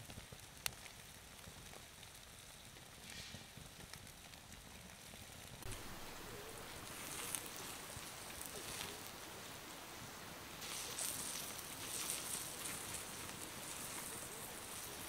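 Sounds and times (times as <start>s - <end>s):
soft rustling and pattering: 2.8s - 9.2s, 10.6s - 15.0s.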